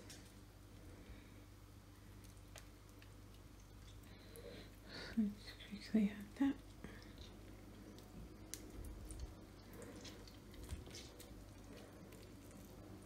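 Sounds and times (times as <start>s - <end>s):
wet squelching of squeezed lemon: 1.9s - 13.0s.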